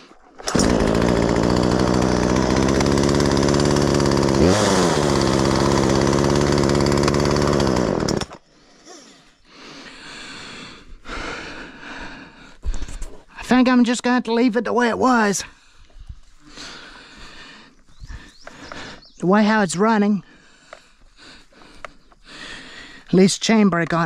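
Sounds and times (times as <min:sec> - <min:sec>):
chainsaw revving: 0:00.4 - 0:08.4.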